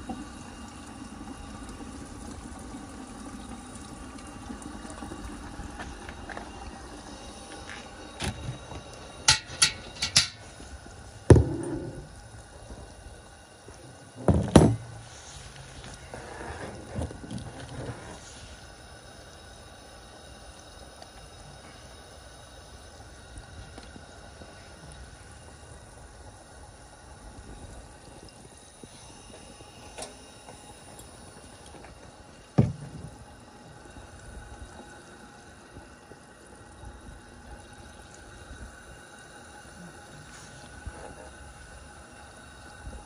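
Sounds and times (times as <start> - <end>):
oil dripping into foil pan: 3.3 - 11.4.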